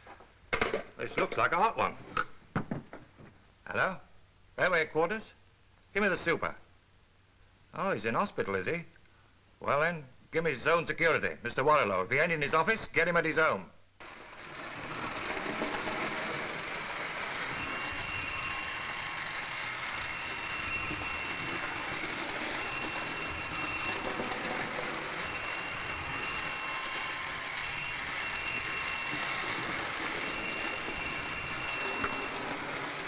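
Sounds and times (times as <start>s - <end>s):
telephone ringing: 14.0s - 33.0s
toy train rattling on track: 14.0s - 33.0s.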